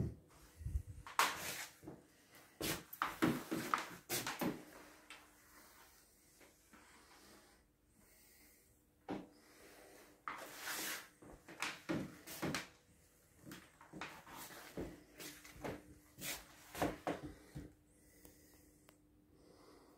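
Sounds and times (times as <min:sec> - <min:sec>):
person moving about: 0:00.0 - 0:07.1, 0:10.3 - 0:12.7, 0:13.4 - 0:17.7
faint steady hum: 0:12.8 - 0:19.9.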